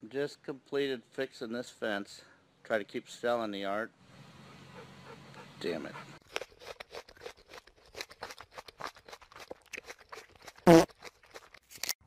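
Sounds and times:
groundhog chewing carrot: 5.8s - 11.7s.

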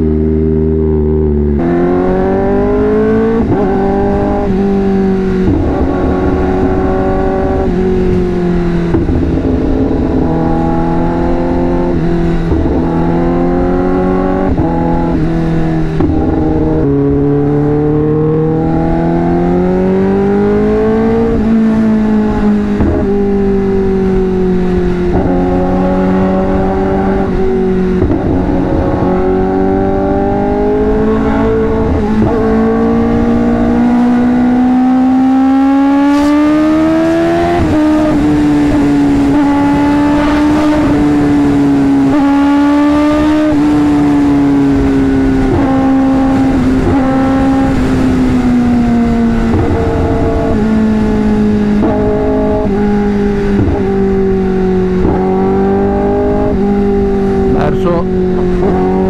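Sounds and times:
motorcycle engine revving: 0.0s - 59.0s
low rushing noise: 3.4s - 19.1s.

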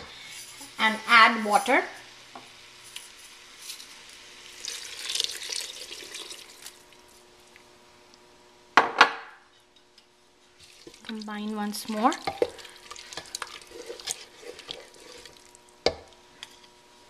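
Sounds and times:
water pouring into a pot: 3.6s - 7.7s, 10.6s - 15.8s.

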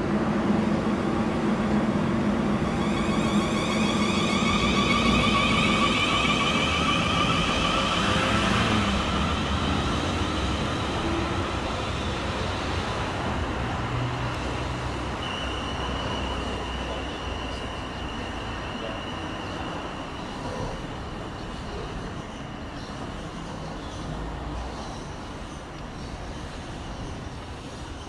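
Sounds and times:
train passing: 0.0s - 28.0s
steady high whine: 2.3s - 12.2s.

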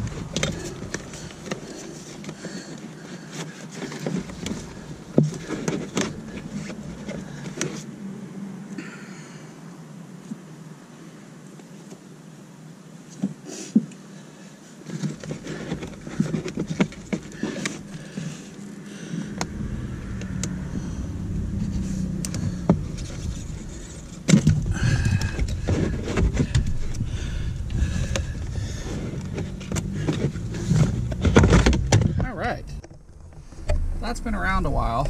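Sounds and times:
low rumble: 17.8s - 35.0s.

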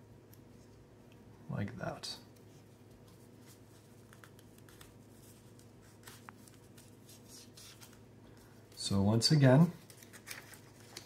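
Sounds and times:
low steady hum: 0.0s - 11.0s
paper being folded: 2.8s - 11.0s.

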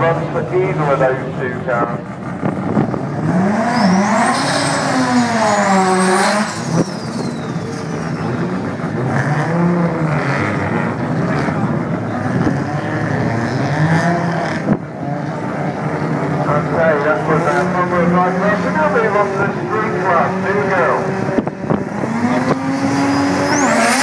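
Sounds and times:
engines revving hard: 0.0s - 24.0s
high whistle: 6.5s - 8.1s.

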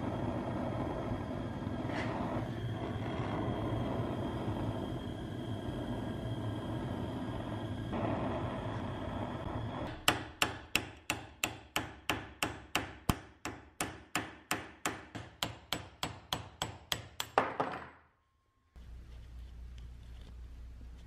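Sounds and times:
hammer striking steel punch: 9.9s - 17.8s.

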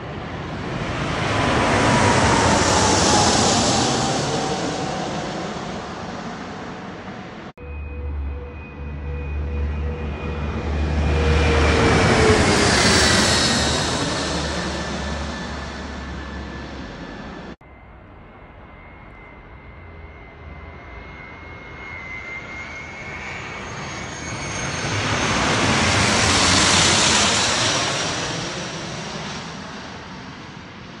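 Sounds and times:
jet flying overhead: 0.0s - 31.0s.

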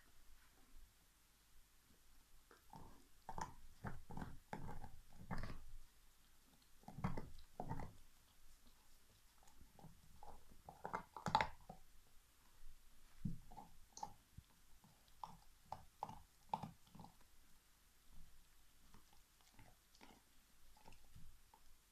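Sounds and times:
dog crunching on bone: 2.6s - 5.8s, 6.5s - 11.9s, 14.8s - 17.3s, 18.8s - 21.6s.

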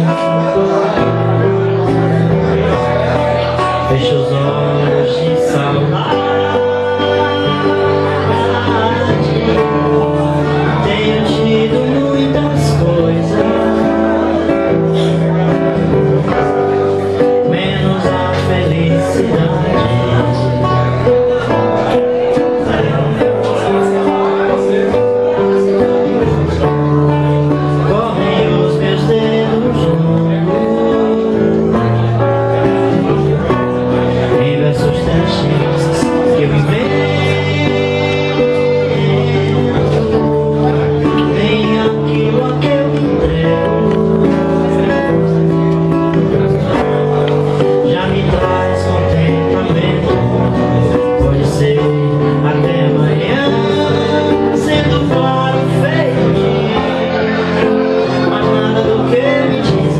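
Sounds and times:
acoustic guitar: 0.0s - 59.9s
man singing: 0.0s - 59.9s.

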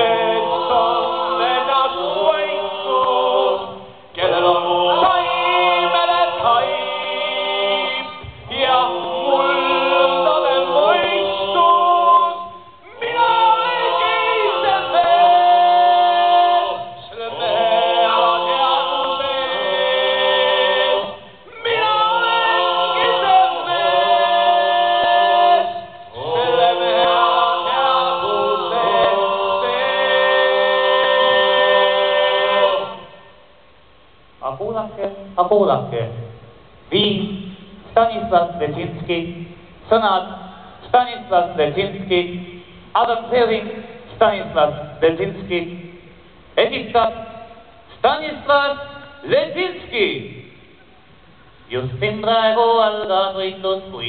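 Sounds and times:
group singing a cappella: 0.0s - 33.8s, 51.2s - 54.0s.

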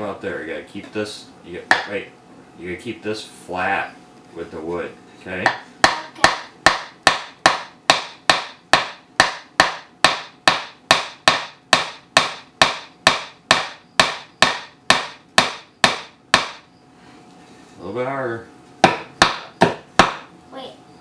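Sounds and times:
hammer tapping nail into wood: 5.4s - 16.6s.

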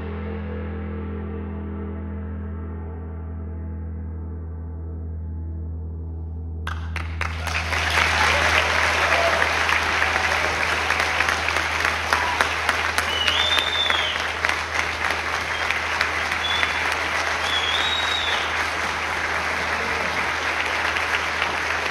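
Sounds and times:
audience clapping: 6.7s - 21.9s
crowd whistling: 6.7s - 21.9s.

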